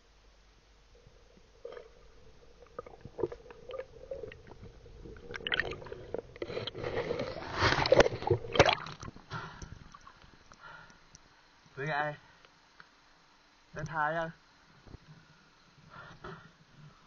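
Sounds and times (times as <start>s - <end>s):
underwater water sloshing: 0.9s - 10.6s.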